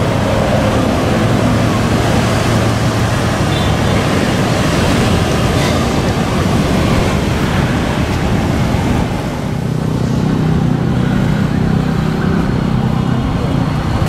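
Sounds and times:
low engine hum: 0:00.0 - 0:14.0
road traffic noise: 0:00.0 - 0:14.0
wind on microphone: 0:00.0 - 0:14.0.

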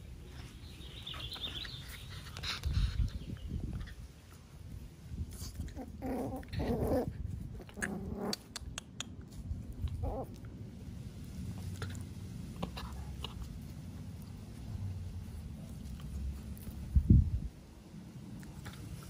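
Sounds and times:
dog growling: 0:05.7 - 0:08.5, 0:09.9 - 0:10.4.

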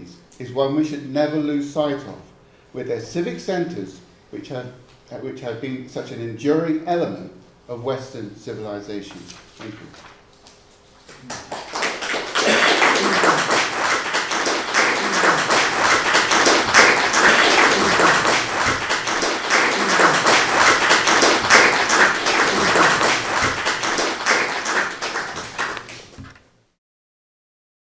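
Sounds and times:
audience applauding: 0:11.2 - 0:26.2.

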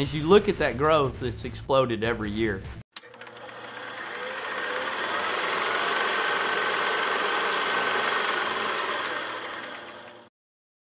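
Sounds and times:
film projector clattering: 0:03.0 - 0:10.3.

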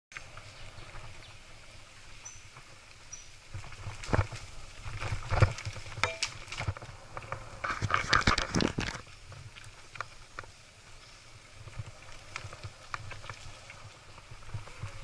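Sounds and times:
bike rattling over bumps: 0:02.2 - 0:15.0.

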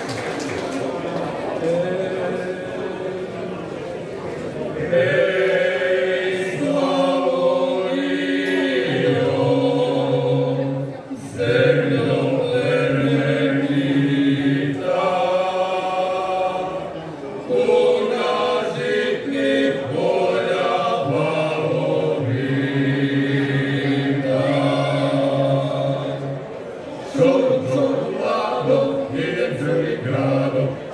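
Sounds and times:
male vocal group singing a cappella: 0:04.8 - 0:26.5, 0:27.1 - 0:30.9.

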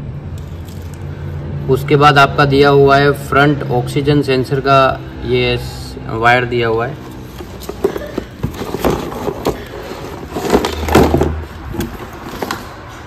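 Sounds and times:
cables rustling against cardboard: 0:07.0 - 0:13.0.

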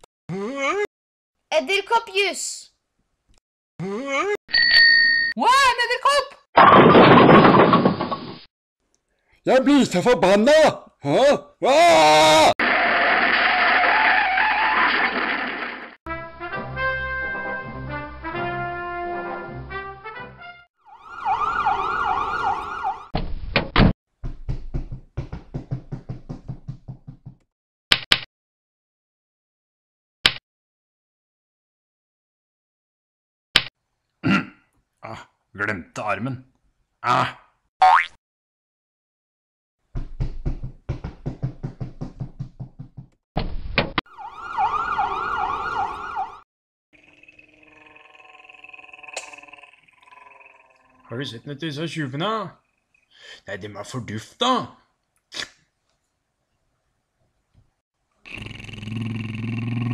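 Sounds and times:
brass music: 0:16.1 - 0:20.7
ambulance siren wailing: 0:20.8 - 0:23.2, 0:44.1 - 0:46.4.

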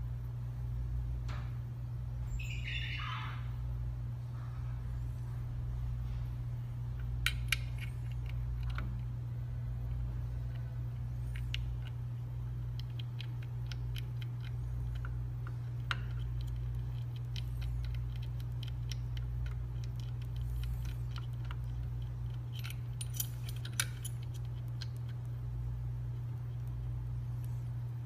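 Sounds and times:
steady low hum: 0:00.0 - 0:28.0
small metallic clicks: 0:07.0 - 0:09.2, 0:10.4 - 0:25.4.

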